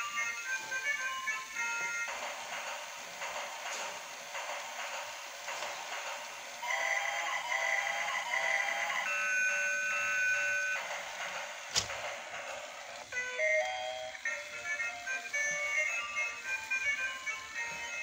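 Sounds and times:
toy beeping electronic melody: 6.7 - 10.9, 13.1 - 18.0.

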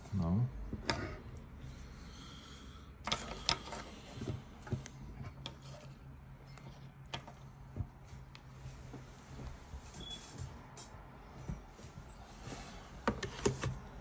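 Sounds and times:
low steady hum: 0.0 - 14.0
light clicks and knocks of handling: 3.0 - 9.5.

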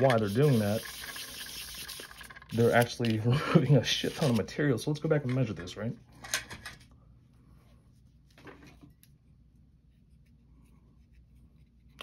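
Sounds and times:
tools rustling and knocking: 8.3 - 9.0.

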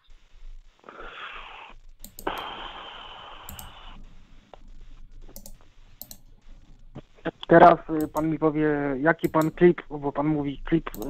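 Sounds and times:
phone line hiss: 0.0 - 11.0
sharp computer clicks: 1.7 - 10.0, 10.7 - 11.0.

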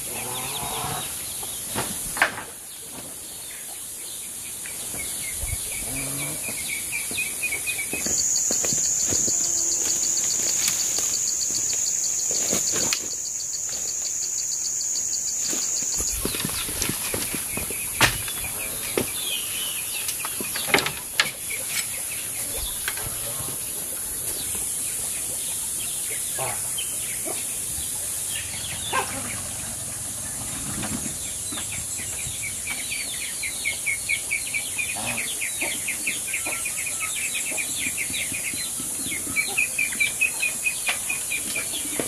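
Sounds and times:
insects droning: 3.4 - 42.0
faint chirps: 7.5 - 20.1
high-pitched pulsing insect buzz: 7.9 - 17.6.

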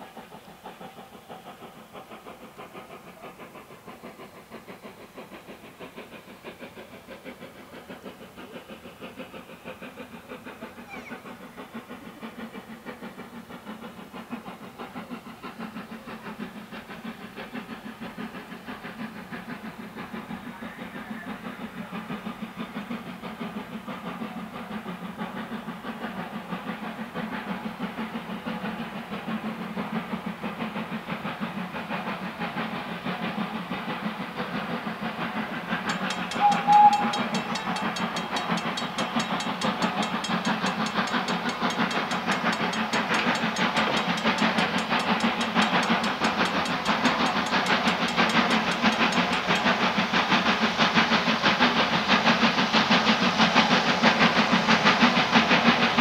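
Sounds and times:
steam locomotive exhaust beating: 0.0 - 56.0
steam whistle blast: 36.3 - 37.4.

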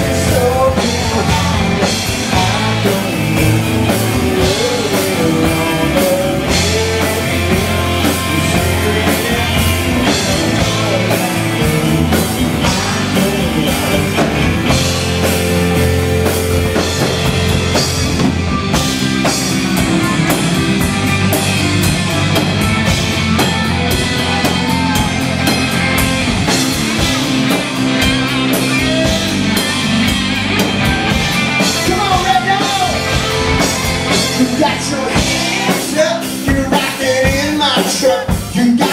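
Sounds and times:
person singing: 0.0 - 15.0, 31.7 - 38.9
bass guitar: 0.0 - 38.9
drum kit: 0.0 - 38.9
electric guitars: 0.0 - 38.9.

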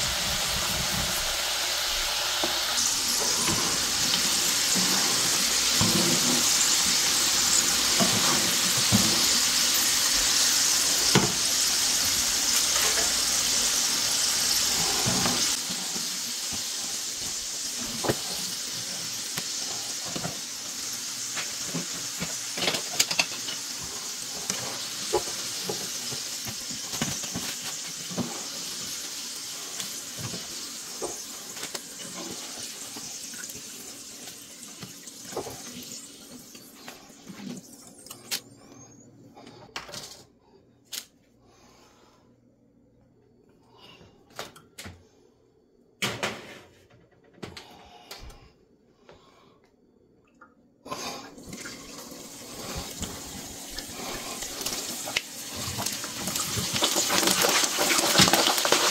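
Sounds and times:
oil sizzling in a frying pan: 0.0 - 37.8, 51.4 - 58.9
oil crackling and popping: 0.0 - 38.5, 51.4 - 58.9.

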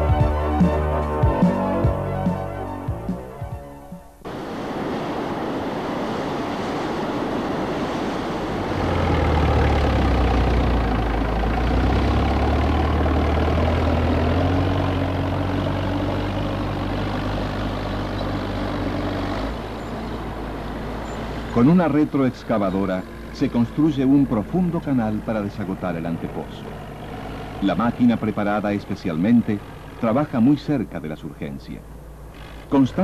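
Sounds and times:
heavy machinery engine running: 4.2 - 33.0.

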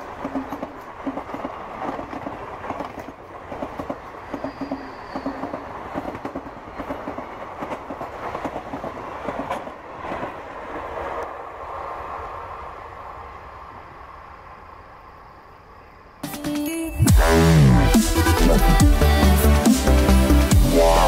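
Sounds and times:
wheels clacking over rail joints: 0.0 - 11.3
train coaches rolling past: 0.0 - 16.3.

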